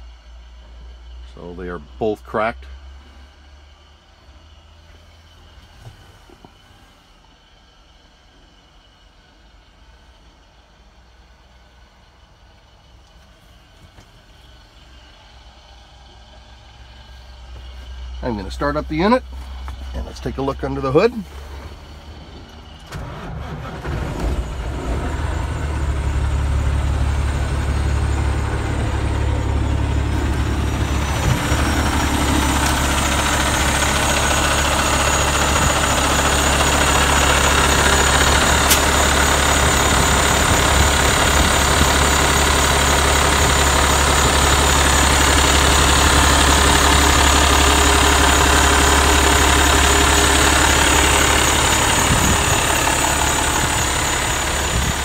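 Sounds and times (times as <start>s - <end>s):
diesel engine idling: 0.0s - 55.0s
sharp click: 38.7s - 38.9s.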